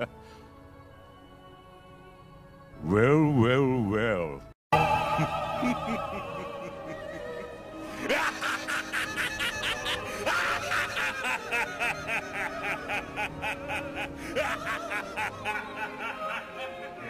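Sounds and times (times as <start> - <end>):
background music: 0.0 - 17.0
man laughing: 5.2 - 17.0.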